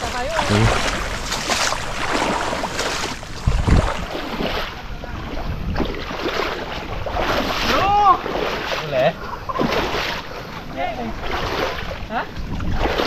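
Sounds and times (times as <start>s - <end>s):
legs wading through water: 0.0s - 13.0s.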